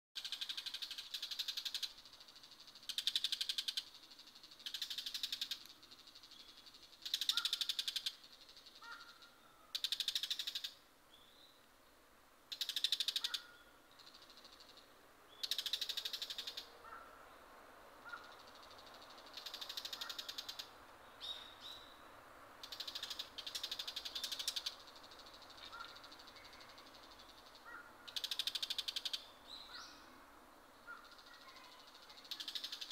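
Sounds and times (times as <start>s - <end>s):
shrike chattering calls: 0.2s - 10.8s, 12.5s - 14.8s, 15.4s - 17.1s, 18.0s - 20.7s, 22.6s - 29.8s.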